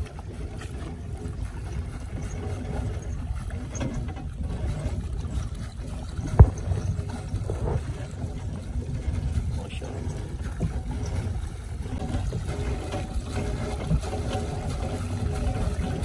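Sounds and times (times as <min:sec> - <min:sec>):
steady low rumble: 0:00.0 - 0:16.0
water dripping and splashing: 0:00.0 - 0:16.0.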